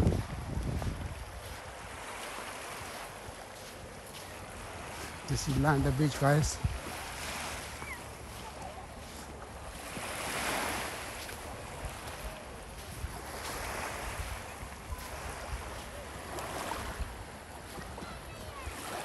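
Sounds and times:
wind on microphone: 0.0s - 2.0s, 5.4s - 7.0s
small waves washing onto shore: 0.0s - 19.0s.

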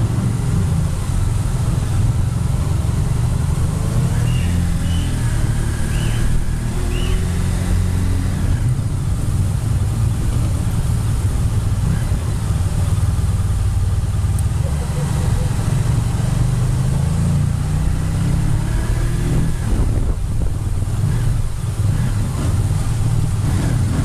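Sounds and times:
motorcycle engine running: 0.0s - 18.7s.

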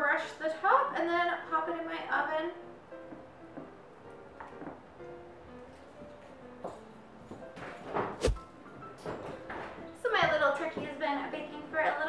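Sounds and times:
soft background music: 0.0s - 12.0s
faint knocks and rustling: 5.7s - 11.0s.

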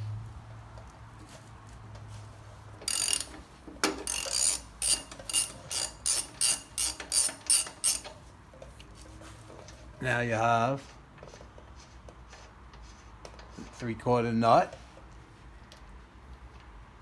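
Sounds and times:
socket ratchet clicking: 2.8s - 3.4s, 4.0s - 8.2s.

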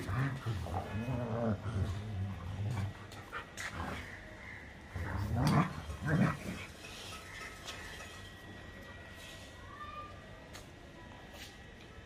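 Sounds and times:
dogs growling: 0.0s - 6.9s.

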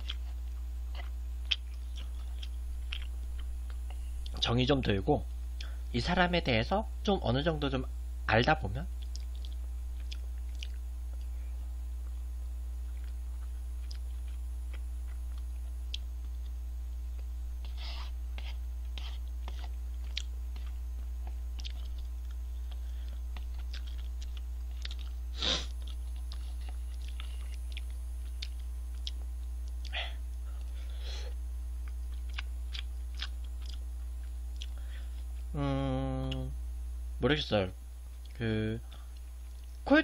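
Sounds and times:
person chewing noodles: 0.0s - 4.4s, 9.0s - 12.2s, 12.8s - 35.4s
steady low hum: 0.0s - 40.0s.

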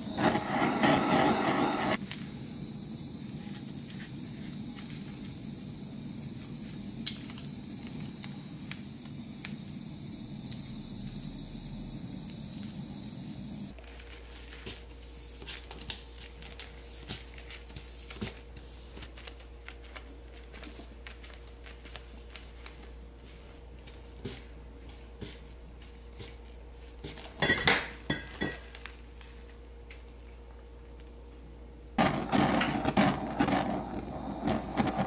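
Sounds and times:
steady low hum: 0.0s - 13.8s, 28.9s - 35.0s.

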